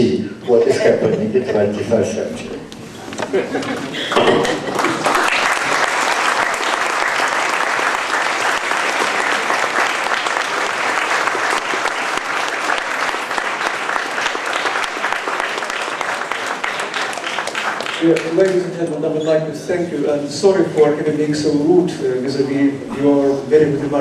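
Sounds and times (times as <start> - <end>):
audience applauding: 3.6 - 18.8.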